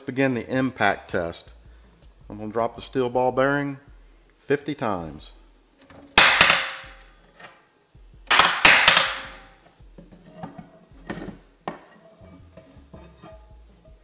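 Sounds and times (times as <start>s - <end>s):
ball bearing clanging in a pan: 5.8s - 7.1s, 8.3s - 14.0s.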